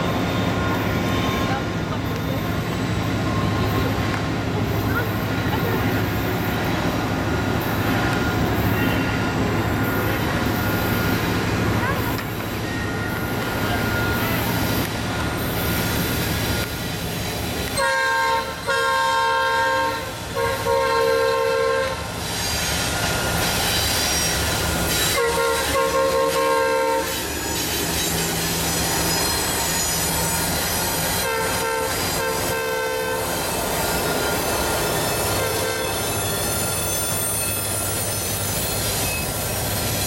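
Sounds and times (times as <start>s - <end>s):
train rumble: 0.0s - 40.0s
locomotive air horn blasts: 17.7s - 22.2s, 24.9s - 27.2s, 31.1s - 33.5s, 35.3s - 36.2s.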